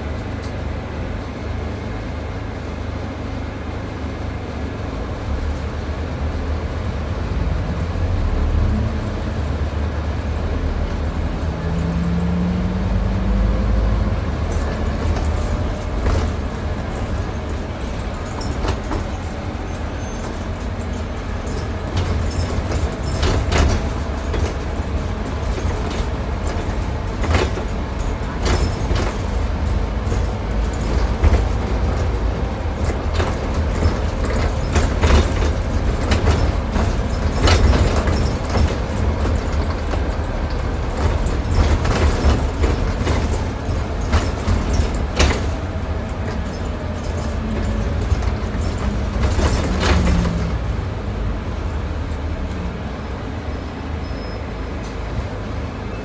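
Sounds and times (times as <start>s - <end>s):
bus engine drone: 0.0s - 56.0s
road noise: 0.0s - 56.0s
bodywork knocks and rattles: 14.3s - 51.8s.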